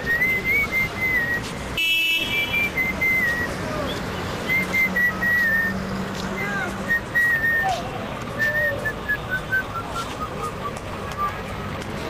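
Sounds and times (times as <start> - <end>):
person whistling a tune: 0.0 - 1.6, 2.3 - 3.8, 4.5 - 5.8, 6.4 - 11.4
street background noise: 0.0 - 12.0.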